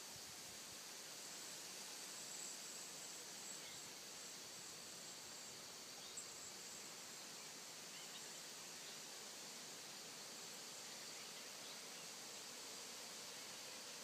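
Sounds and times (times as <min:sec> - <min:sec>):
insects trilling: 0:00.5 - 0:14.0
faint bird chirps: 0:03.4 - 0:04.0, 0:04.9 - 0:09.1, 0:10.7 - 0:12.2.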